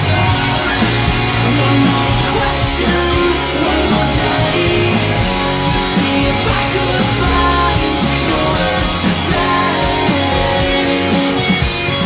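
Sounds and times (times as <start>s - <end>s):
rock band playing live: 0.0s - 12.0s.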